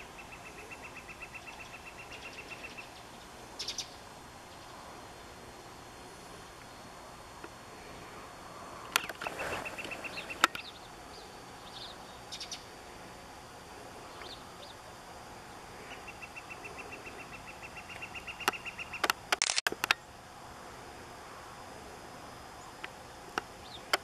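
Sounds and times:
bird trilling: 0.0s - 3.0s, 3.6s - 4.7s, 9.0s - 12.7s, 15.9s - 19.1s
sharp clicks: 17.9s - 20.0s.

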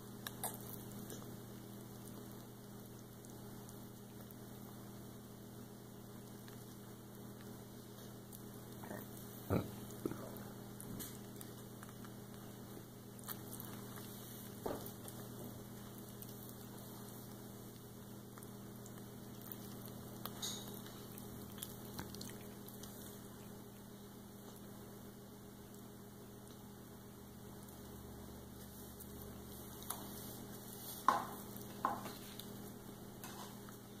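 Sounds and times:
steady low hum: 0.0s - 34.0s
child chewing mouth clicks: 0.1s - 4.5s, 6.2s - 24.7s.

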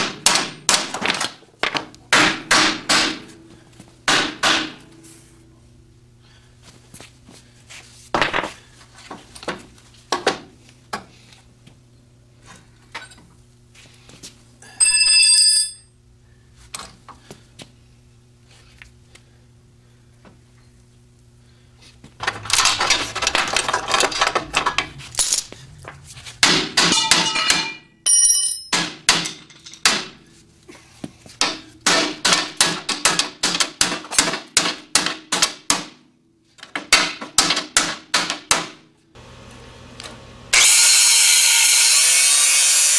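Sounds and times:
short metallic ring: 27.0s - 28.8s.

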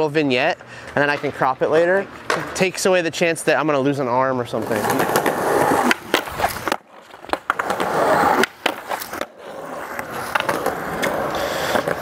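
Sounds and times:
skateboard wheels rolling on concrete: 0.0s - 12.0s
skateboard clacks: 4.6s - 12.0s.

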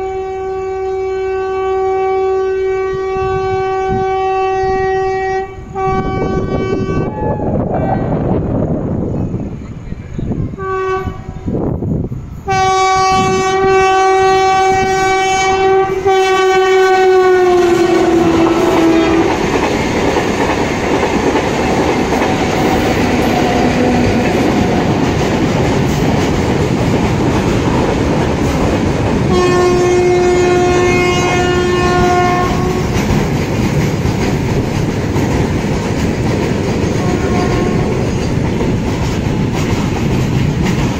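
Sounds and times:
locomotive horn blasts: 0.0s - 8.0s, 10.6s - 11.5s, 12.4s - 19.4s, 29.3s - 33.0s, 37.0s - 38.0s
passing train rumble: 0.0s - 40.9s
train wheels clickety-clack: 17.5s - 40.9s.

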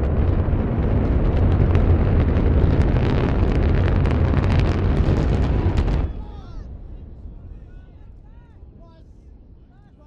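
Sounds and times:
distant rocket roar: 0.0s - 9.6s.

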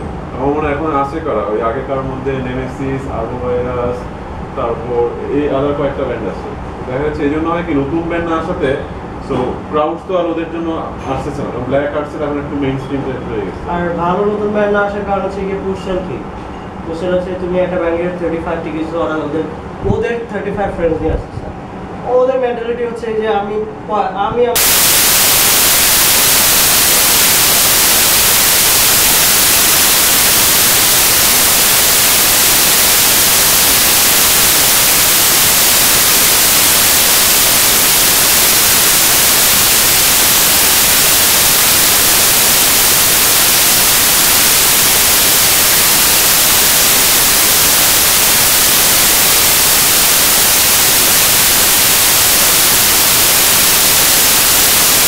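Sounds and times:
loud static hiss: 0.0s - 10.6s, 24.6s - 55.0s.

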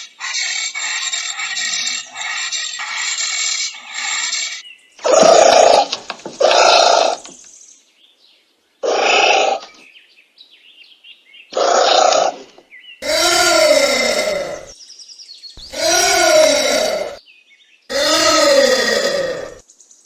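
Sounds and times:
anteater harsh calls: 0.0s - 7.2s, 8.8s - 9.7s, 11.6s - 14.7s, 15.6s - 17.2s, 17.9s - 19.6s.

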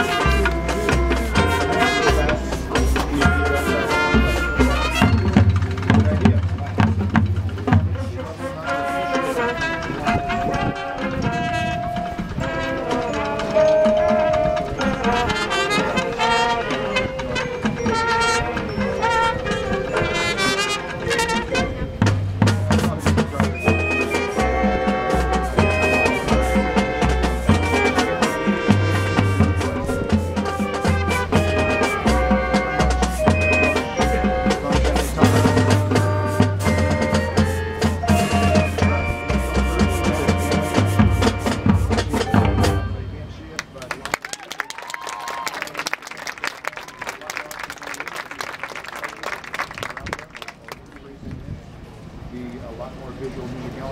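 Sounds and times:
held brass note: 0.0s - 6.3s, 8.0s - 43.4s
low bass line: 0.0s - 8.6s, 17.6s - 43.6s
mallet percussion: 0.0s - 8.8s, 10.0s - 43.8s
drums: 0.0s - 8.9s, 9.6s - 44.0s
wind instruments holding chords: 0.0s - 44.2s
marching band playing: 0.0s - 50.2s.

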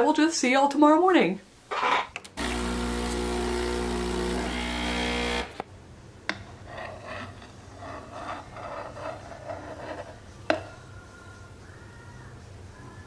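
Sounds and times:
espresso machine motor hum: 2.4s - 5.6s.

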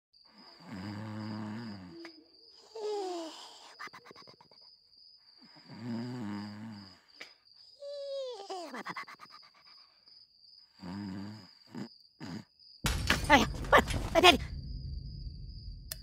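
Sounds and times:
high chirring like crickets: 0.2s - 16.0s
comic snoring with whistle: 0.6s - 4.0s, 5.5s - 7.1s, 10.8s - 12.5s.

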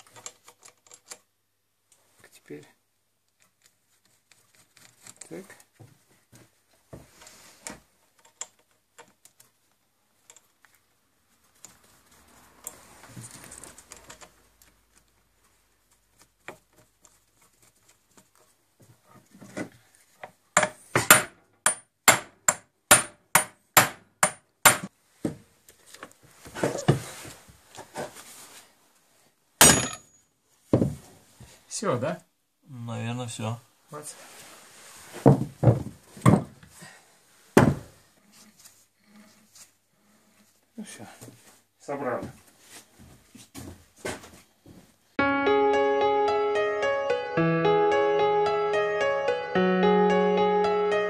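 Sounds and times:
metal clicks of bolts and nuts: 0.0s - 1.3s.

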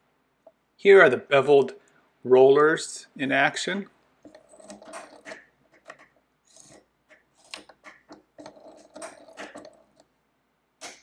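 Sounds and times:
metallic clicks and rubbing: 4.2s - 10.1s.

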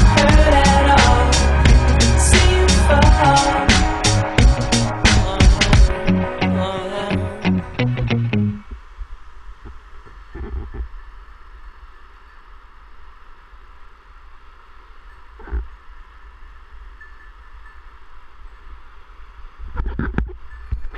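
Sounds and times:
low rumble: 0.0s - 8.9s.

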